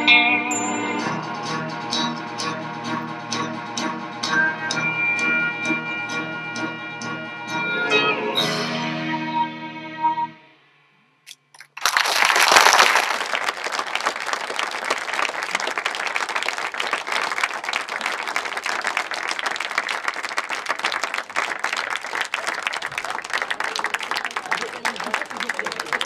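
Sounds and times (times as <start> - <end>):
audience applauding: 11.6 - 26.0.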